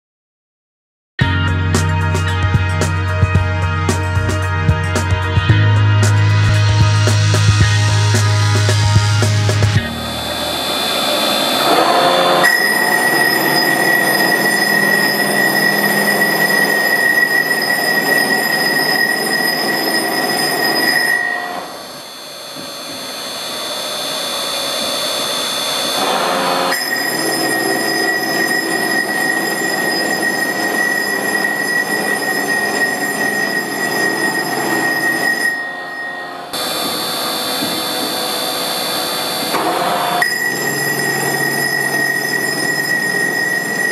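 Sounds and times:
abrasive roller whining on marble: 9.8 - 43.9.

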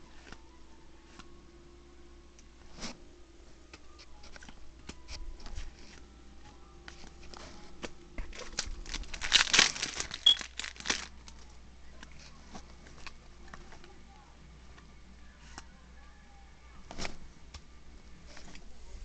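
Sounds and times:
crinkling: 6.8 - 14.0.

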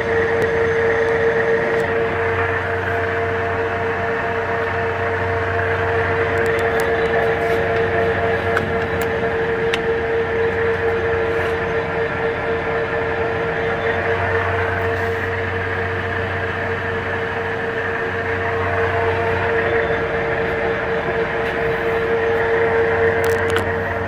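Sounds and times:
lathe running with geared whine: 0.0 - 24.0.

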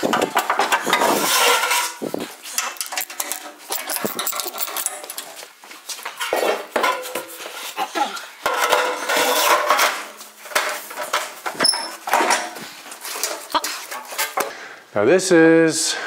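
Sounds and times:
sheet steel clanking and rattling: 0.0 - 5.4, 6.2 - 7.6, 8.4 - 14.4.

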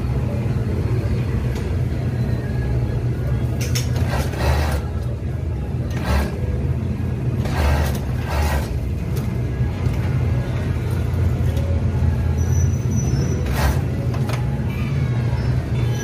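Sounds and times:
fast machine stitching: 4.0 - 4.9, 5.9 - 6.4, 7.4 - 8.9, 13.4 - 13.9
sewing machine motor hum: 4.0 - 5.1, 5.9 - 6.6, 7.4 - 9.0, 13.4 - 14.2.

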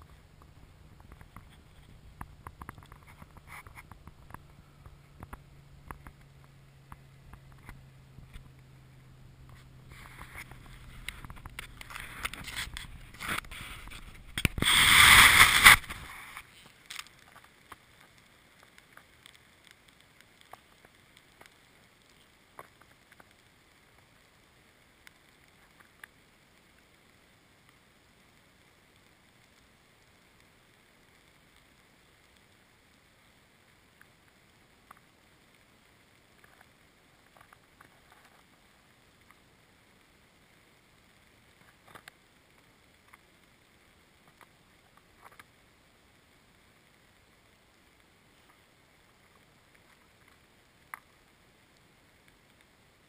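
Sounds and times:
crunches on crusted snow: 0.0 - 26.8
faint hiss: 0.0 - 53.0.

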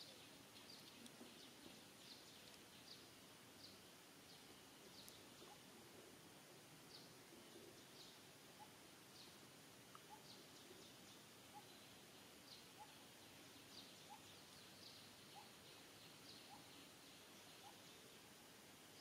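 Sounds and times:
lower rising bird chirps: 6.8 - 18.3.

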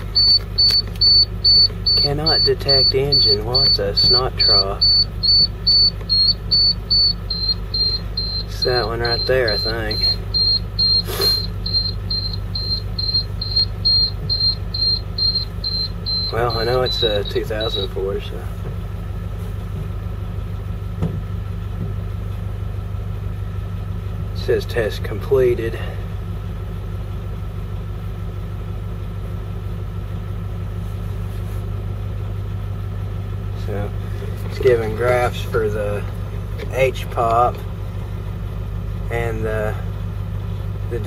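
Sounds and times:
electronic warning beeps: 0.0 - 18.3
diesel engine idling: 0.0 - 41.0.

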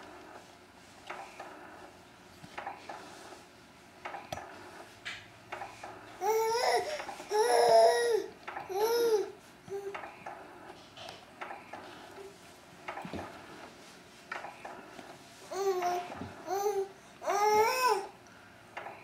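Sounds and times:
baby babbling: 6.2 - 9.9, 15.5 - 18.1.

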